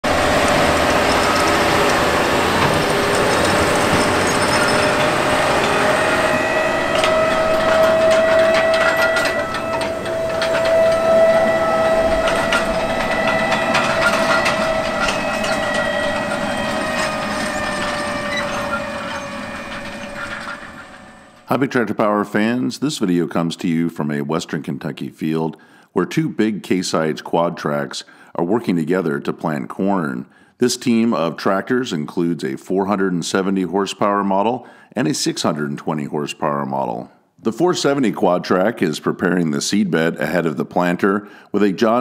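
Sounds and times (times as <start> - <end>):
planter clattering and rattling: 0.0 - 21.5
high whine: 0.0 - 21.6
tractor engine drone: 0.0 - 21.7.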